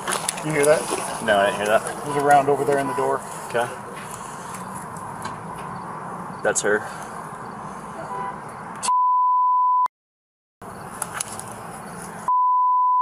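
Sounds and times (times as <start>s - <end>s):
censor bleep tone: 8.8s - 9.9s, 12.3s - 13.0s.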